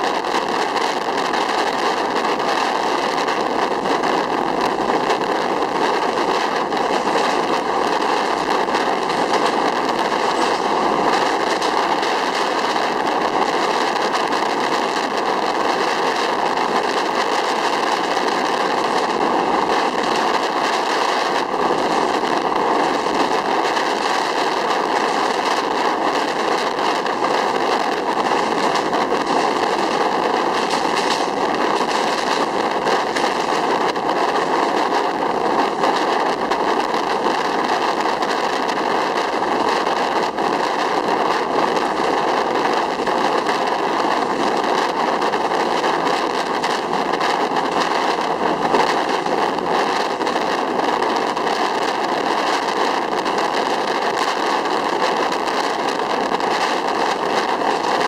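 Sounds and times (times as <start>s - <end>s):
train wheels rolling on rails: 0.0s - 58.0s.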